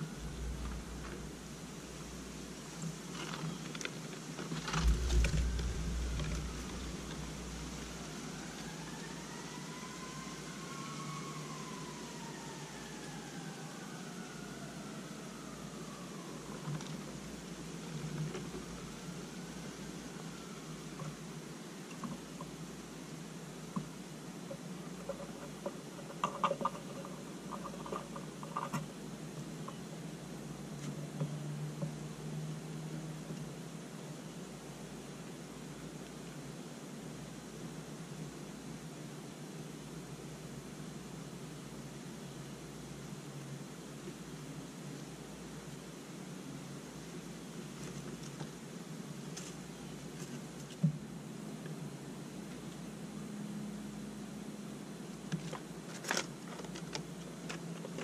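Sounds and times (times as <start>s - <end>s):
distant siren wailing: 0.0s - 1.7s, 4.7s - 21.2s
low thump: 4.7s - 7.5s
squirrel clicks and scratches: 24.5s - 28.9s.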